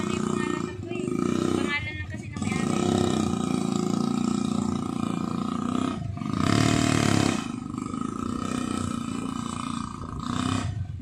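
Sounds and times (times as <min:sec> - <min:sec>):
small engine buzzing and revving: 0:00.0 - 0:11.0.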